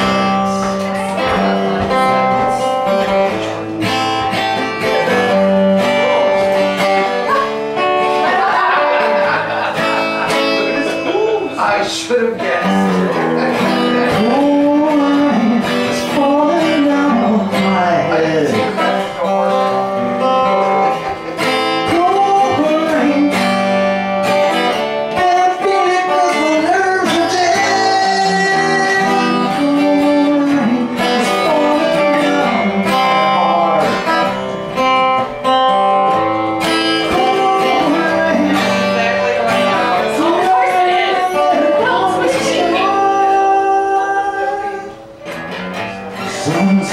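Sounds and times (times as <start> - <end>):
acoustic guitar strumming: 0.0 - 46.9
woman singing: 37.1 - 45.0.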